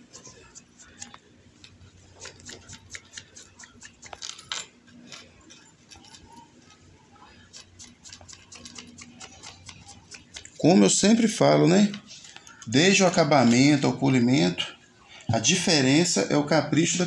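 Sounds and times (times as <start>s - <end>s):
jewellery chain links clinking: 4.0s - 6.5s.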